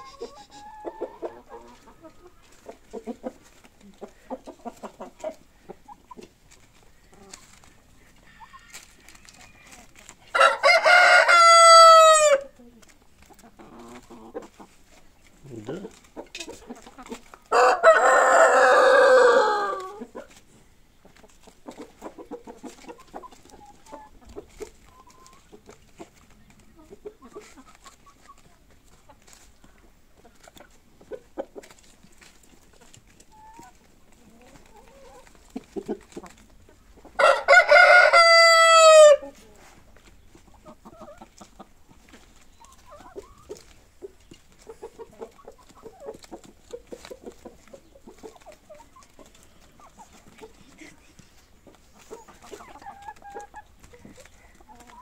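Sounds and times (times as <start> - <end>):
chickens clucking: 0.0 - 55.0
rooster crowing: 10.3 - 12.4, 17.5 - 19.8, 37.2 - 39.2.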